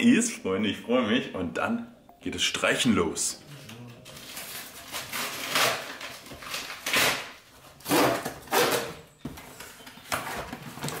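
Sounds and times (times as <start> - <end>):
cardboard parcel tearing and rustling: 4.0 - 9.0.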